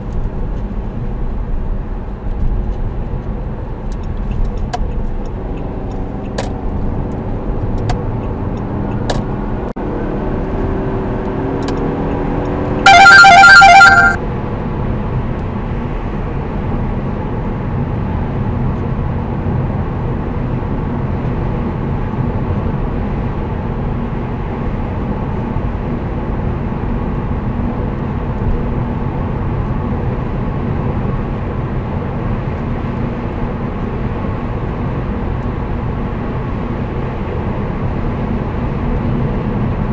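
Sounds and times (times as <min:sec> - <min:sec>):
road and tyre noise: 0:00.0 - 0:39.9
dash cam beeping alert: 0:12.9 - 0:14.2.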